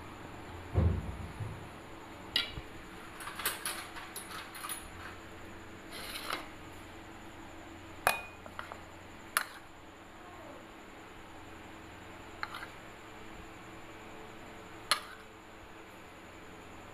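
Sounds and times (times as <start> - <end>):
faint steady hum: 0.0 - 16.9
glass dishes clinking: 8.1 - 8.4.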